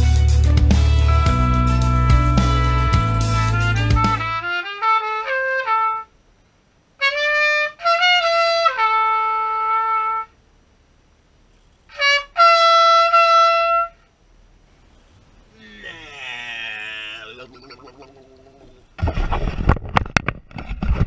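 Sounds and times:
solo trumpet playing: 0.9 - 6.1, 7.0 - 10.4, 11.9 - 14.0.

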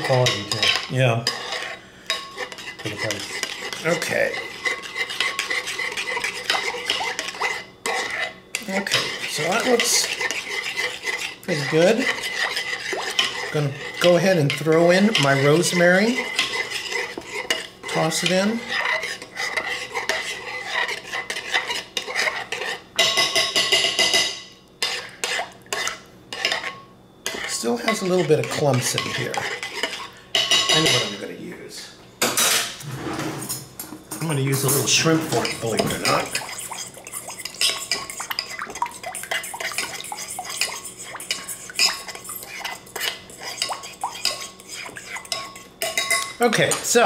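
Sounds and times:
utensil scraping a bowl: 0.0 - 31.2, 32.8 - 33.7, 34.3 - 47.0
metal fork clinking against bowl: 34.6 - 46.8.

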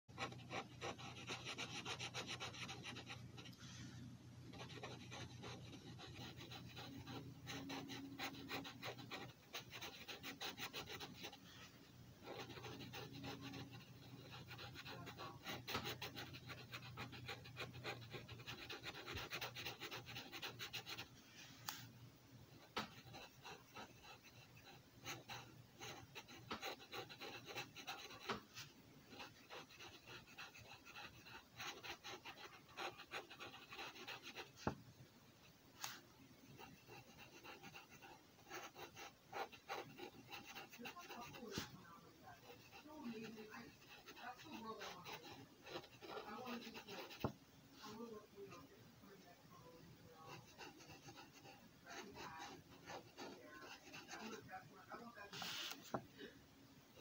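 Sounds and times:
marker scratching on paper: 0.1 - 3.5, 4.5 - 21.1, 22.6 - 34.8, 35.9 - 48.5, 50.2 - 56.0.

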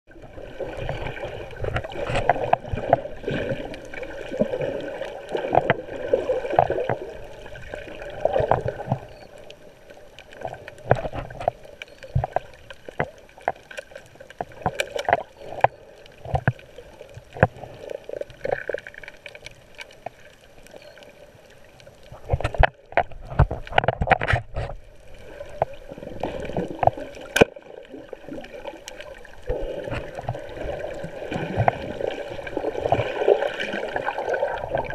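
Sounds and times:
muffled underwater water sloshing: 0.1 - 34.9.

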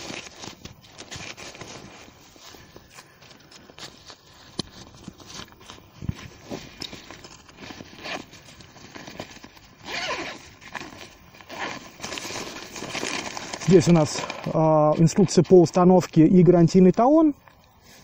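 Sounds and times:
zipper pulled open: 6.3 - 14.6.

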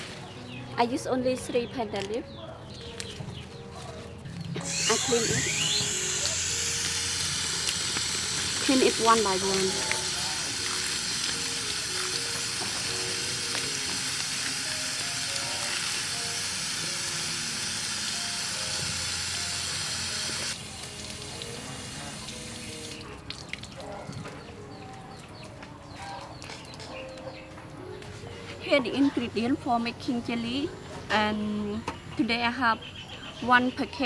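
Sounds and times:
light background melody: 0.0 - 34.0
tap water running over leaves: 4.9 - 17.4, 18.1 - 24.6.

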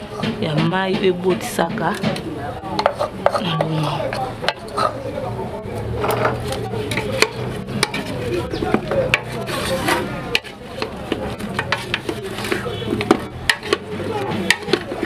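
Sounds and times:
wooden spoon scraping a pot: 2.8 - 5.1, 6.0 - 15.0.

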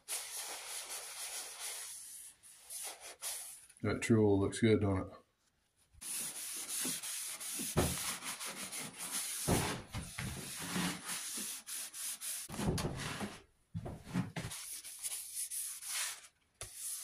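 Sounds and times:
paper towel rubbing wood: 6.0 - 12.6, 14.3 - 17.0.

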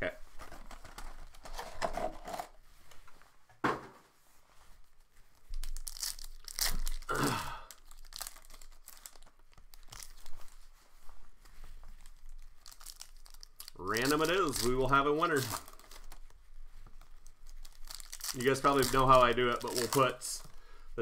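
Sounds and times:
packaging tearing and crinkling: 5.5 - 10.5, 12.0 - 16.3, 17.0 - 20.5.

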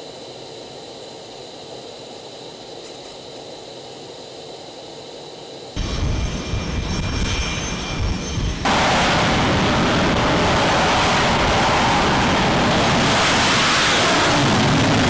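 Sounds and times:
jet engines roaring: 5.2 - 15.0
high whine: 5.6 - 15.0.

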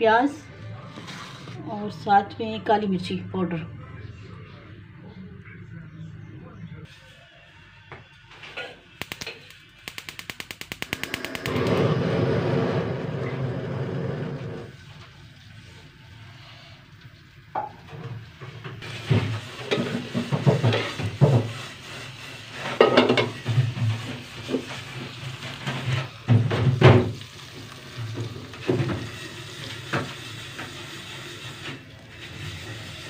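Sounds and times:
spices sizzling in hot oil: 14.7 - 33.0.

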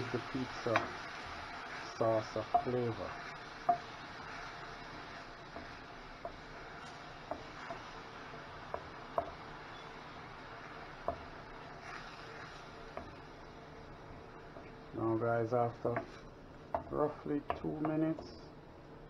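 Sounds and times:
onions sizzling in a pan: 0.0 - 19.0
spoon knocking against a pan: 2.5 - 2.7, 3.6 - 3.9, 8.7 - 9.4, 15.9 - 18.3.

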